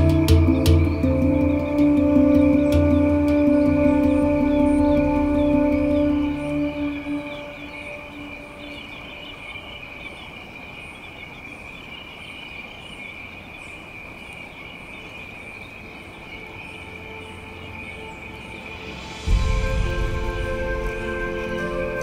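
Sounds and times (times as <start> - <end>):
insects droning: 0.0 - 22.0.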